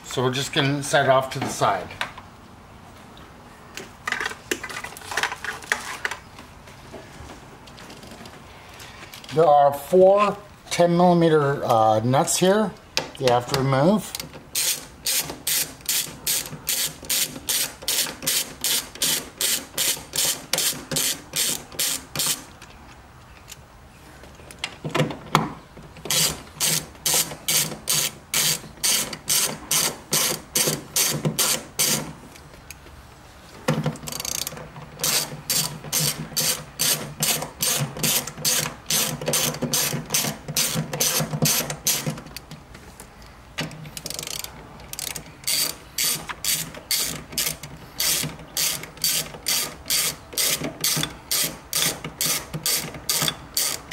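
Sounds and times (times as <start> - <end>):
socket ratchet clicking: 14.1 - 22.4, 26.1 - 32.0, 34.0 - 42.5, 43.9 - 53.9.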